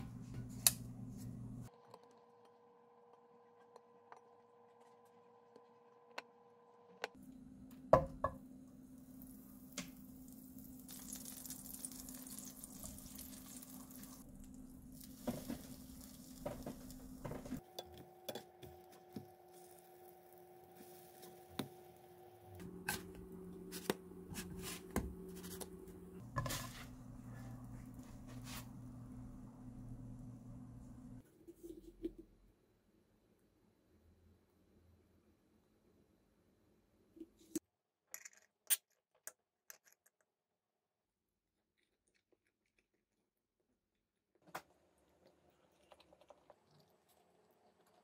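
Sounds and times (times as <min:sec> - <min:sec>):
bread sizzling in a frying pan: 0:09.1 - 0:17.6.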